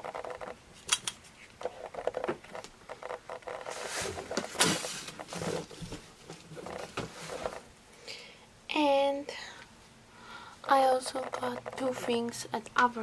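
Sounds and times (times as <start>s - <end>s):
cardboard box rustling and scraping: 3.4s - 7.7s.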